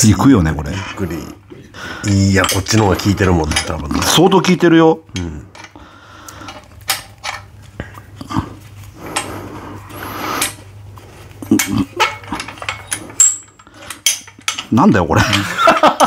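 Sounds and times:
metal clinks and knocks: 2.1 - 4.3, 6.4 - 7.6, 11.4 - 16.0.

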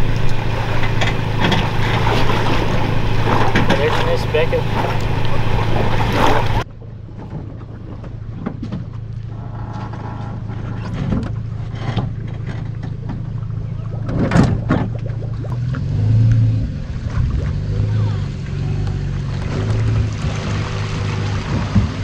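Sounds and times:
loud rough engine noise: 0.0 - 6.7, 8.2 - 22.0
small boat engine idling: 0.0 - 16.0, 16.7 - 22.0
knocks on boat: 0.8 - 6.6, 21.2 - 22.0.

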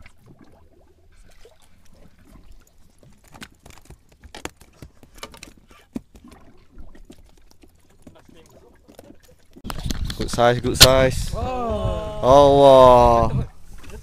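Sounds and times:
water splashing and dripping: 0.0 - 10.2.

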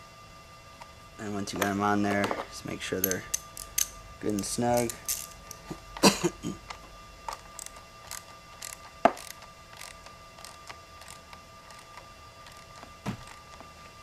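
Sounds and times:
wrench clicking on metal bolts: 3.0 - 5.6.

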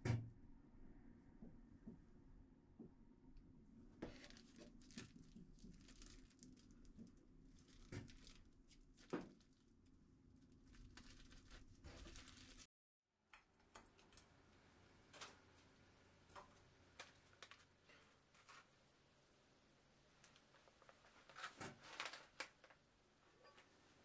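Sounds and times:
cling film crinkling: 4.0 - 12.7, 16.4 - 18.7, 20.2 - 22.8.

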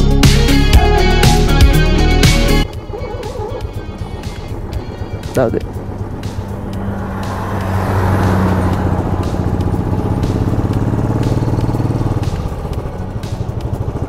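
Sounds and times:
truck passing: 0.6 - 14.0.

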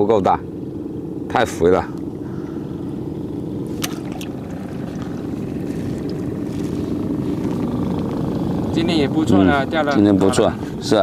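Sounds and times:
boat engine running: 0.0 - 11.0.

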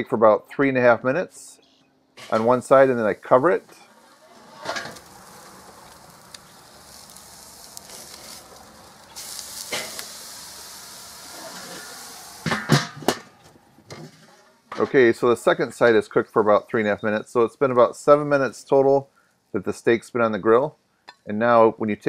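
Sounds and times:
steak sizzling on grill: 2.2 - 12.9.

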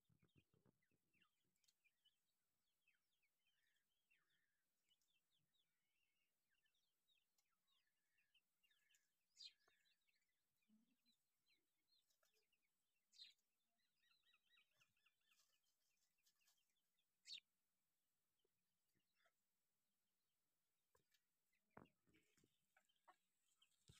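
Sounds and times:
chicks peeping and chirping: 14.0 - 15.6.

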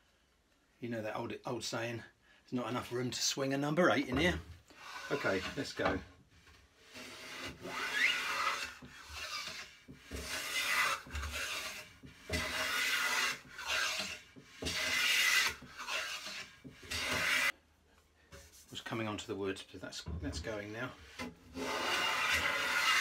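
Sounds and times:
hand plane cutting strokes on wood: 4.7 - 17.5, 21.0 - 23.0.

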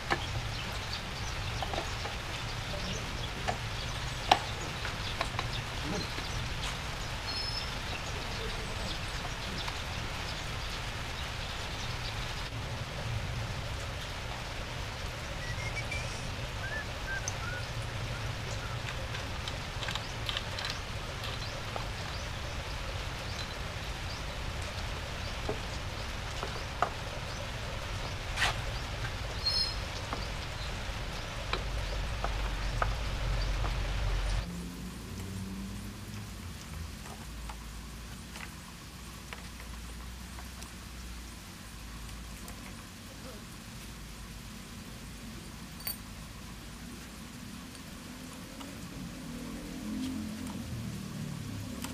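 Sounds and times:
outdoor background noise: 0.0 - 51.9
bird chirps: 15.3 - 18.8, 29.4 - 29.9
metallic chain clicks: 45.8 - 46.0.

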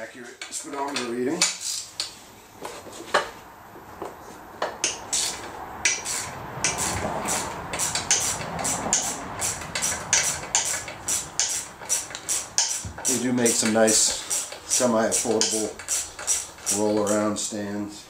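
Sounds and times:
handling and scraping noise: 0.0 - 17.4
metallic clicks of hand tools: 4.8 - 17.2.

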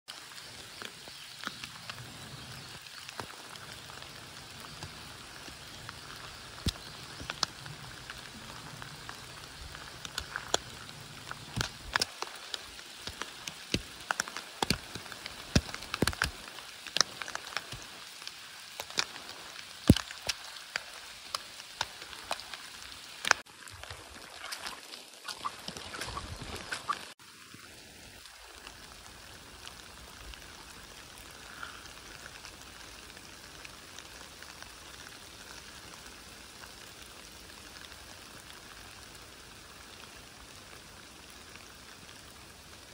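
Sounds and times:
raindrops tapping: 0.1 - 27.2
rain falling in a forest: 0.1 - 42.9.

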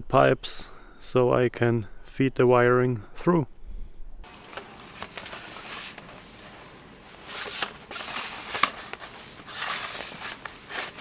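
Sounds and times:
plastic pipe rustling and scuffling: 4.3 - 11.0.

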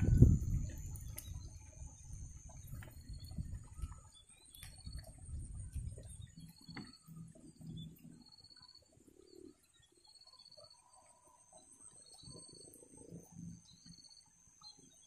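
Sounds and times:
low rumble: 0.0 - 3.9.

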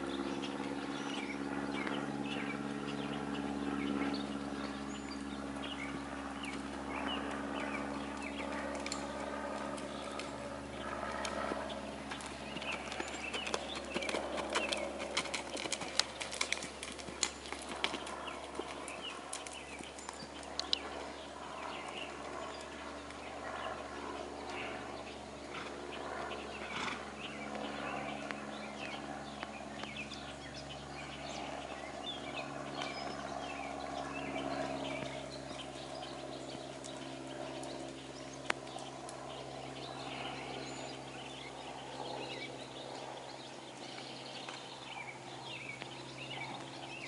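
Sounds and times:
birds chirping: 0.0 - 47.0
low droning hum: 0.0 - 47.0.

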